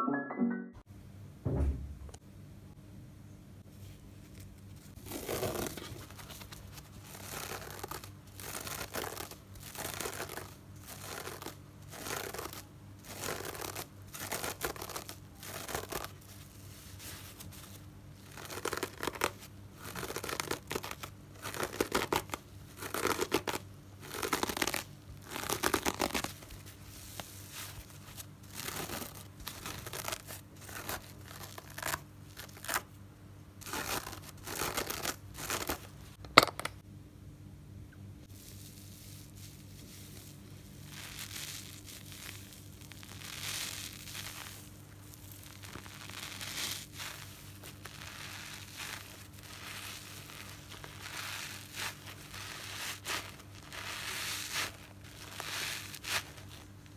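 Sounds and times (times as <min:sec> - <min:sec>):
hands scratching a dry sponge: 0:03.8 - 0:32.8, 0:38.3 - 0:56.8.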